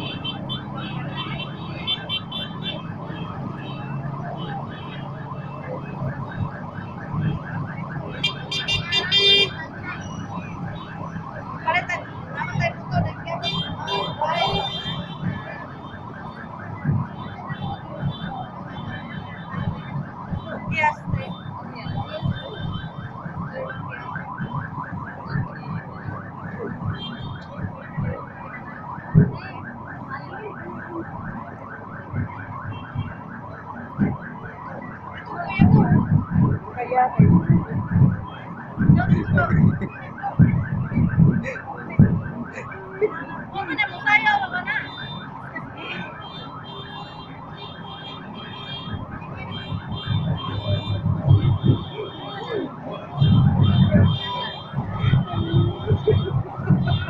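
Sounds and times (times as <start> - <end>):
electronic siren yelping: 0.0 - 57.0.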